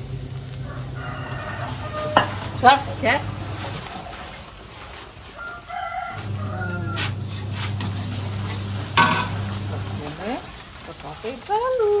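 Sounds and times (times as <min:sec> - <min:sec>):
steady low hum: 0:00.0 - 0:04.7, 0:06.1 - 0:10.6
chicken calling: 0:00.4 - 0:04.4, 0:05.3 - 0:07.6.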